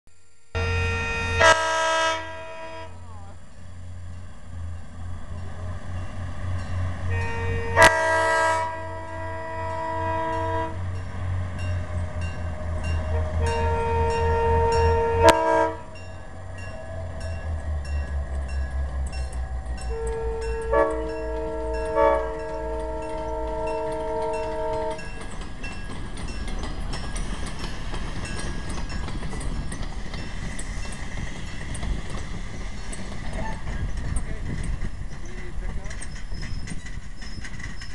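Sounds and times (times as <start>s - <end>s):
locomotive air horn blasts: 0.5s - 3.1s, 7.0s - 10.9s, 12.9s - 16.0s, 19.8s - 25.2s
locomotive engine throbbing: 0.6s - 37.9s
wheels ticking over rail joints: 3.1s - 37.9s.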